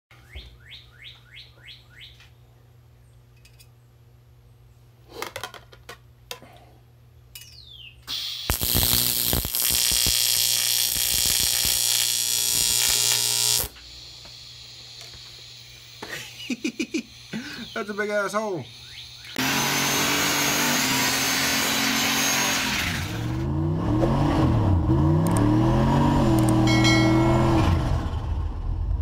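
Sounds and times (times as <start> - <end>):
welding arc hissing and buzzing: 8.1 - 18.0
clicks: 25.2 - 25.5, 26.3 - 26.9.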